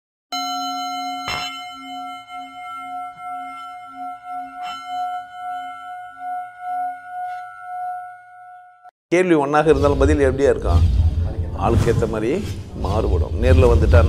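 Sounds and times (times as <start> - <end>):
singing bowl ringing: 0.4 - 8.9.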